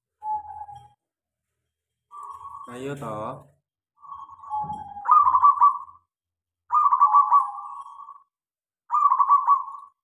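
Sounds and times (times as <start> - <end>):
dove cooing: 4.4 - 6.0, 6.7 - 8.2, 8.9 - 10.0.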